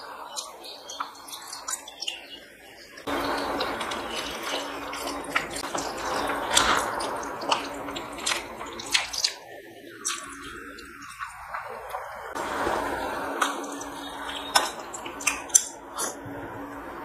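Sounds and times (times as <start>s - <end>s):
fingers mashing food squelching: 0.3s - 12.3s
eating mouth sounds: 0.3s - 12.4s.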